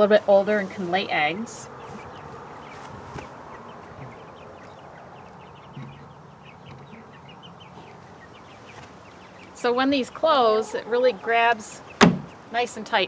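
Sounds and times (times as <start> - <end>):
chicks peeping: 0.0 - 13.0.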